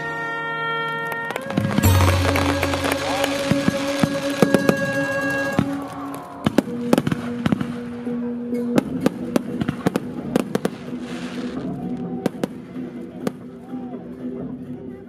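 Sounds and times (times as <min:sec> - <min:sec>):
fireworks crackling fizz: 0:01.1 - 0:13.4
fireworks bangs: 0:01.3 - 0:08.2.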